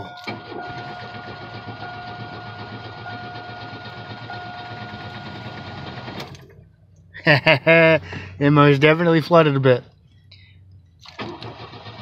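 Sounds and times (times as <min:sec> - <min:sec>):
starter cranking car engine: 0:00.0 - 0:06.7, 0:11.0 - 0:12.0.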